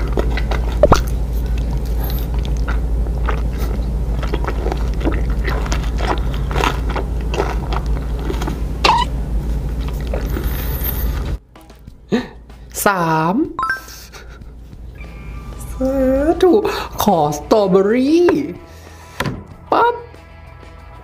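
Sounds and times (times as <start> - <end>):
close-miked chewing: 0.0 - 10.5
steady low hum: 0.0 - 12.8, 13.4 - 17.5
wet mouth clicks and lip smacks: 0.4 - 1.1.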